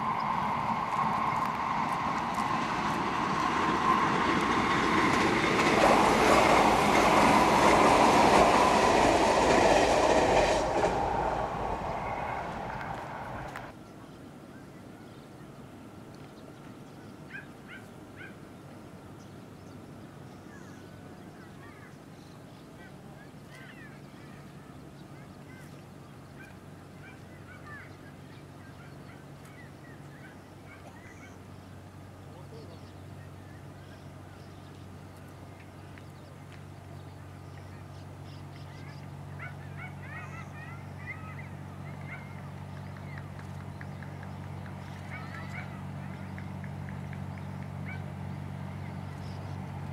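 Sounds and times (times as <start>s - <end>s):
distant train engine drone: 0.0s - 13.8s, 18.2s - 49.9s
distant animal yelps: 39.4s - 42.4s.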